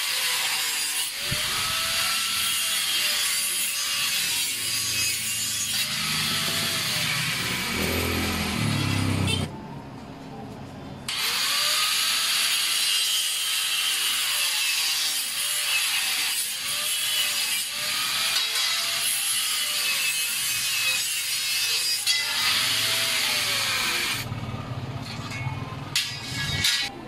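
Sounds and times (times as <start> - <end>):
saw cutting through wood: 0.0 - 9.5, 11.1 - 24.3.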